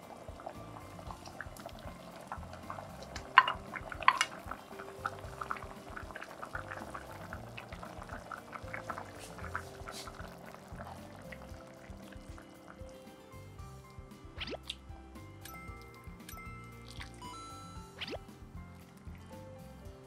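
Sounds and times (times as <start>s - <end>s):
stew bubbling in a pot: 0.0s - 14.9s.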